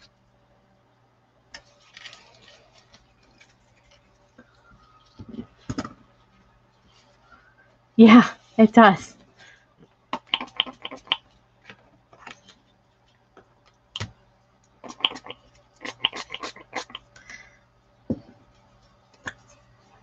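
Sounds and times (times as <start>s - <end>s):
pump spray bottle squirting: 14.9s - 16.9s.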